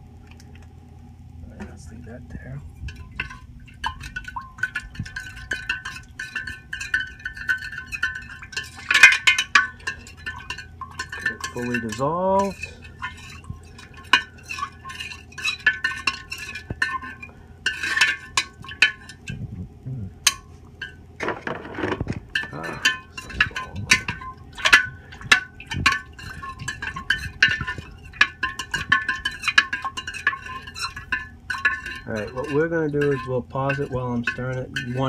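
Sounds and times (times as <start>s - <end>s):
spoon clinking against glass: 3.0s - 17.2s, 22.4s - 35.0s
spoon scraping glass: 3.0s - 19.4s, 20.3s - 35.0s.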